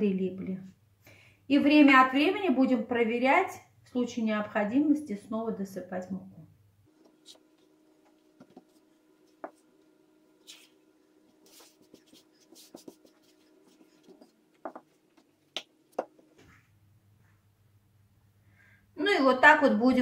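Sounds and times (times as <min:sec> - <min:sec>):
faint steady hum: 0:00.0 - 0:20.0
hands patting dough: 0:06.9 - 0:16.4.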